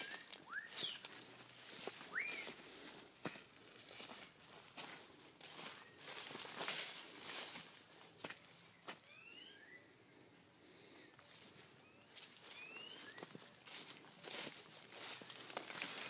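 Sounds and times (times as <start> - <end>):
bird chirping: 0.0 - 1.2, 2.0 - 2.6, 8.6 - 13.6
footsteps through long grass: 0.0 - 9.1, 11.2 - 16.0.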